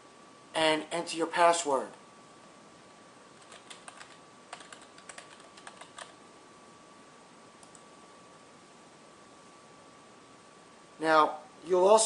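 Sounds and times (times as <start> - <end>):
keyboard typing: 3.4 - 6.2, 7.6 - 7.8.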